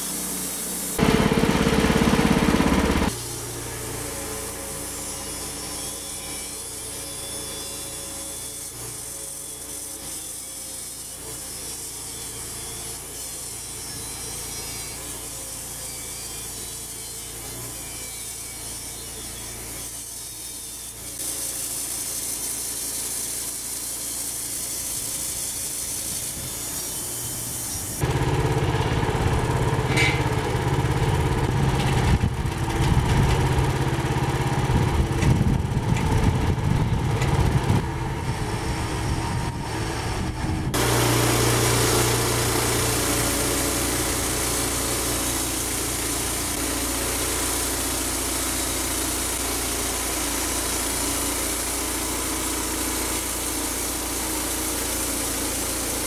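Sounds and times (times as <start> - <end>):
small petrol engine running: 1.0 - 4.9, 28.0 - 56.0.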